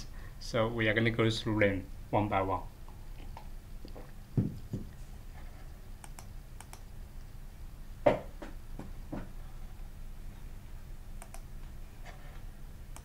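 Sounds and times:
faint steady hum: 0:00.0 - 0:13.0
computer mouse clicks: 0:06.0 - 0:06.9, 0:11.2 - 0:11.5.

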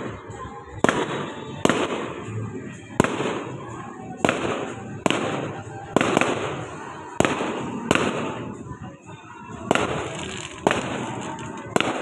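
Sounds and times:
fireworks bangs: 0:00.0 - 0:08.8, 0:09.5 - 0:12.0.

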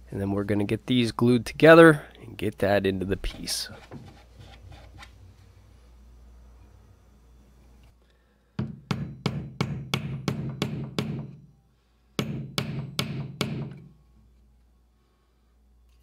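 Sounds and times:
hammer striking nails into wood: 0:08.6 - 0:11.4, 0:12.2 - 0:13.9.

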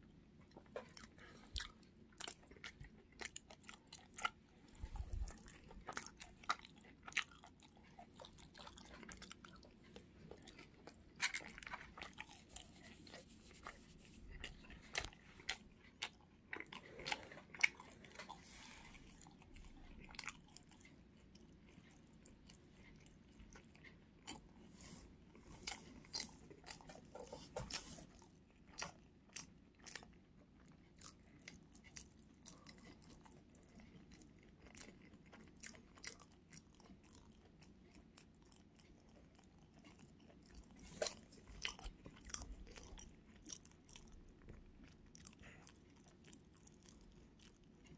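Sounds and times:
crunching and chewing fried chicken: 0:00.0 - 0:47.9.

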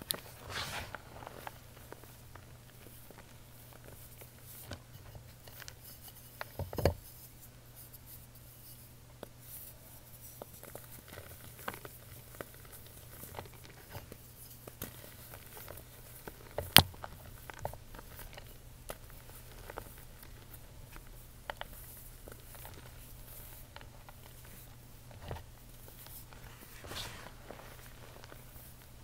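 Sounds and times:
powder crackling: 0:15.0 - 0:29.0.

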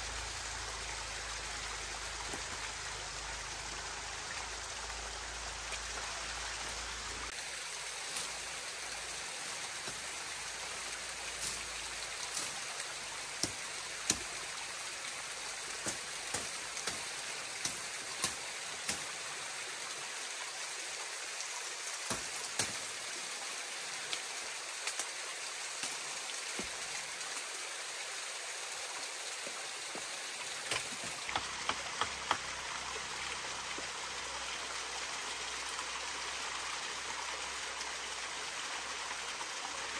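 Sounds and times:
water rushing: 0:00.0 - 0:39.9
sharp taps and clicks: 0:30.7 - 0:32.4.

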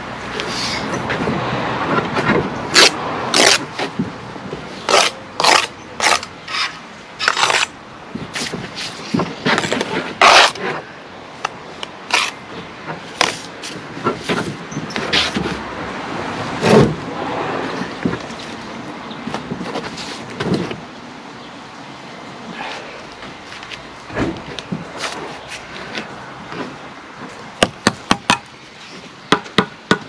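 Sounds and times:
trowel scraping and tapping mortar: 0:04.9 - 0:07.7, 0:08.4 - 0:10.8, 0:11.4 - 0:12.4.

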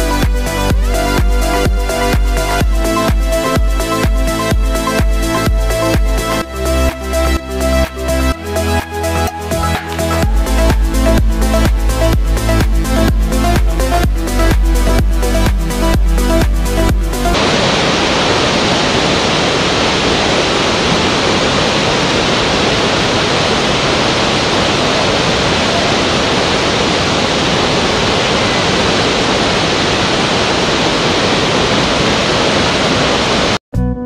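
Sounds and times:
waterfall rushing: 0:00.0 - 0:33.6.

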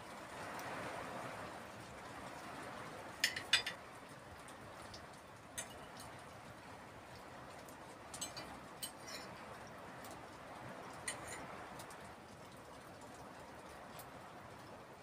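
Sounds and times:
soft steady hiss: 0:00.0 - 0:15.0
cutlery clinking on a plate: 0:03.2 - 0:03.8, 0:08.2 - 0:09.4, 0:11.1 - 0:11.5.

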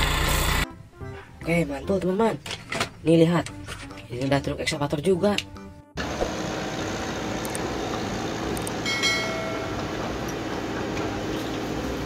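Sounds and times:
excavator diesel engine running: 0:00.0 - 0:00.6, 0:06.0 - 0:12.0.

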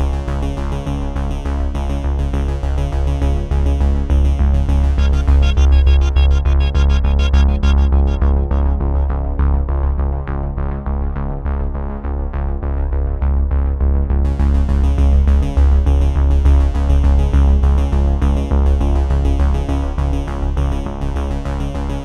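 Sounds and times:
electronic music with synthesizer: 0:04.1 - 0:10.0.

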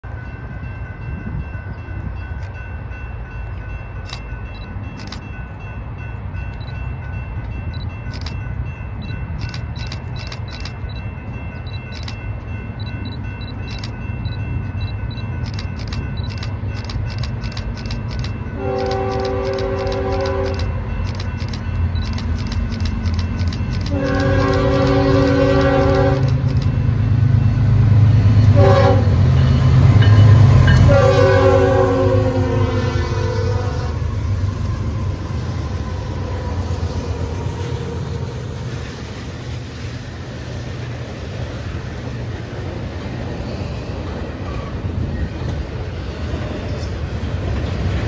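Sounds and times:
diesel trains rumbling: 0:00.0 - 0:48.0
sharp ticks: 0:04.1 - 0:05.6, 0:07.4 - 0:26.9
train air horn chord: 0:18.6 - 0:20.7, 0:23.9 - 0:26.4, 0:28.5 - 0:29.3, 0:30.8 - 0:34.1.

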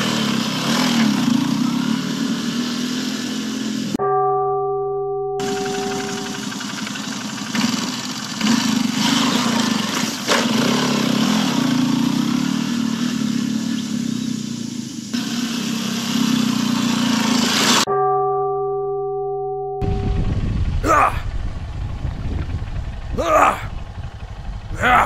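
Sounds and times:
dirt bike engine revving: 0:00.0 - 0:04.0, 0:05.4 - 0:17.9, 0:24.7 - 0:25.0.

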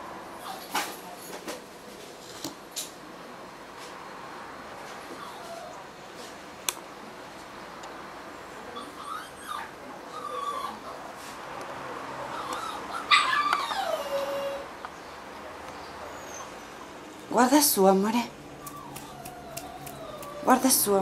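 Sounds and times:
dog whining: 0:05.2 - 0:05.8, 0:08.8 - 0:11.1, 0:12.3 - 0:14.7, 0:16.1 - 0:16.8, 0:18.6 - 0:20.9.

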